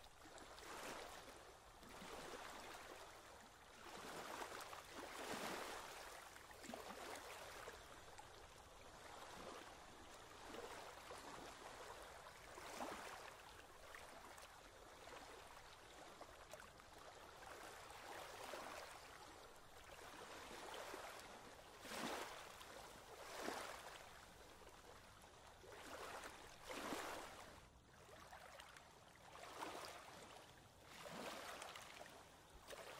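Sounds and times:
water flowing and splashing: 28.1s - 32.9s.

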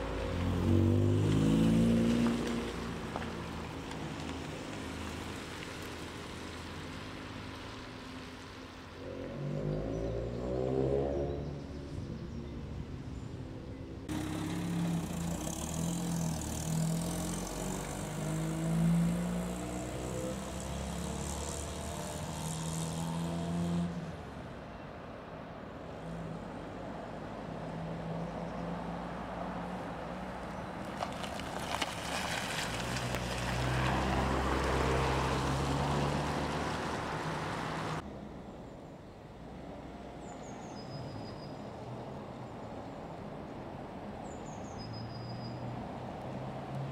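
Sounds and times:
cars driving past accelerating: 0.0s - 12.6s, 14.0s - 24.6s, 25.9s - 38.1s.

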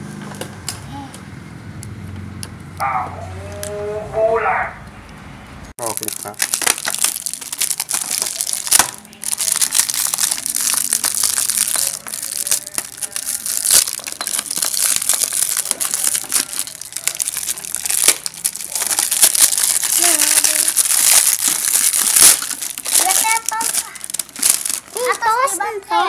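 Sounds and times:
plastic wrapping crinkling: 5.8s - 25.5s.

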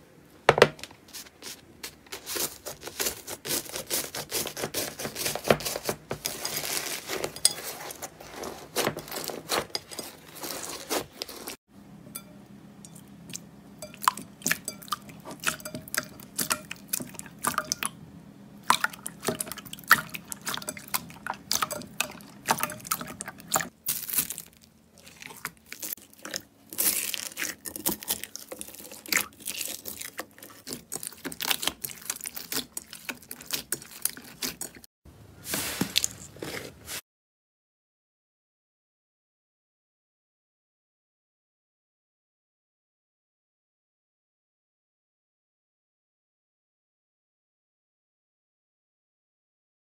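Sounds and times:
slime squishing: 1.1s - 11.6s, 18.7s - 34.8s.

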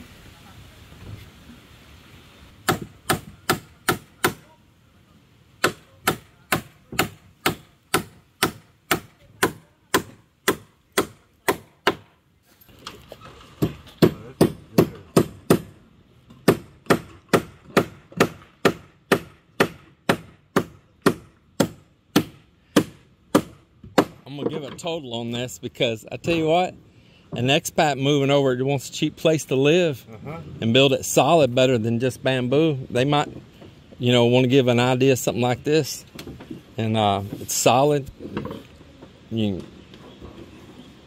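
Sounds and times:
hammer driving nails into wood: 16.4s - 24.2s.

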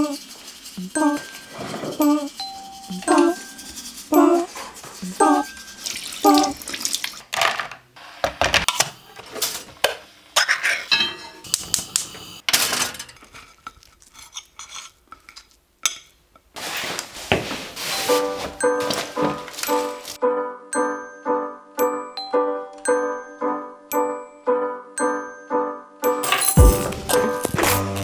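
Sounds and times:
music: 0.8s - 5.6s, 18.0s - 28.0s
dishes and cutlery clattering: 10.4s - 11.5s, 12.5s - 16.2s.

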